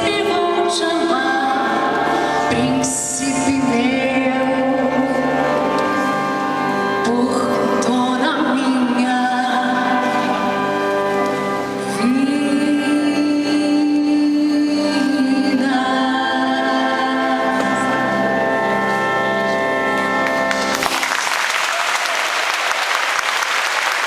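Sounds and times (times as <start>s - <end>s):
woman singing through microphone: 0.0s - 5.7s, 6.9s - 10.7s, 11.8s - 18.5s
musical accompaniment: 0.0s - 24.0s
congregation applauding: 20.2s - 24.0s.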